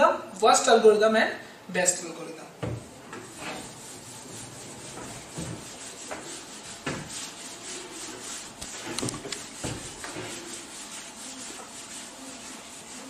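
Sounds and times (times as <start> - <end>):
duster rubbing on whiteboard: 2.8 - 13.0.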